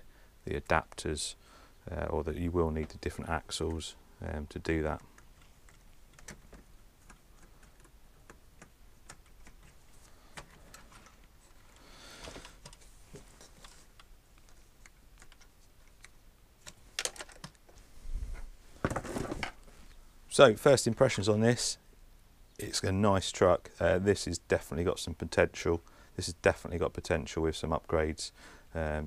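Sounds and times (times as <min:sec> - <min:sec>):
soft rustle: 0:09.5 - 0:15.9, 0:17.6 - 0:20.1
plastic parts clicking: 0:13.4 - 0:17.7.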